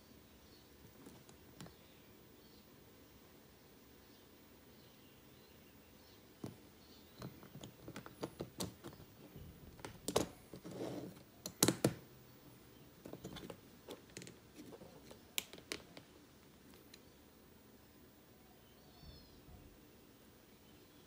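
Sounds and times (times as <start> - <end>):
plastic parts clicking and tapping: 6.4 - 10.7, 11.4 - 12.1, 13.0 - 16.1.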